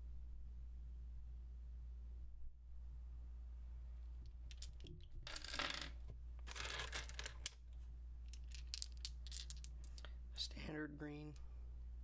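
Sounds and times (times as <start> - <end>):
low steady hum: 0.0 - 12.0
dice rattling: 4.2 - 10.1
plastic dice clicking and clacking: 4.3 - 7.6, 8.2 - 10.1.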